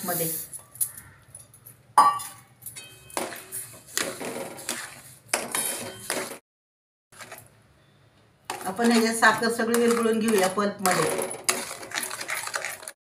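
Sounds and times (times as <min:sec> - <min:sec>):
steel spoon scraping a pan: 0:02.8 - 0:06.4.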